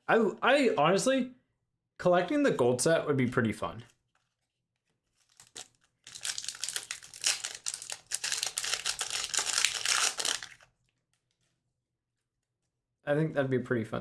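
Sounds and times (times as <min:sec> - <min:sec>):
wrapper crinkling and tearing: 0:04.1 - 0:11.3.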